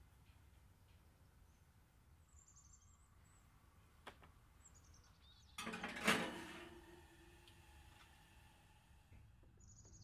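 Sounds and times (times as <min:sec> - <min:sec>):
metal pan scraping on oven rack: 0:05.6 - 0:06.8.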